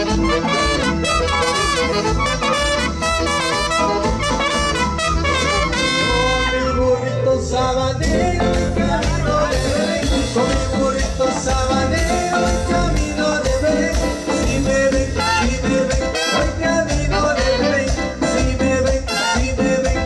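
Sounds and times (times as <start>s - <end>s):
trumpets playing melody: 0.0s - 7.2s, 14.2s - 20.0s
live band music: 0.0s - 20.0s.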